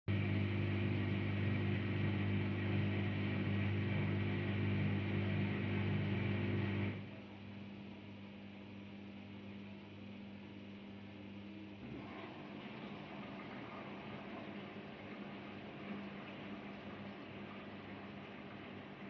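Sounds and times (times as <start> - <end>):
faint hum: 0.1 - 19.0
water rushing through inlet valve: 11.8 - 19.0.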